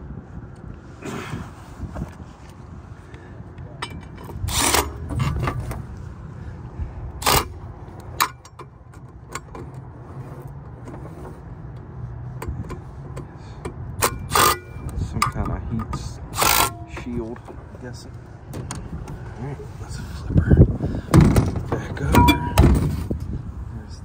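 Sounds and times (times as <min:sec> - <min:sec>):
steady low rumble: 0:00.0 - 0:24.0.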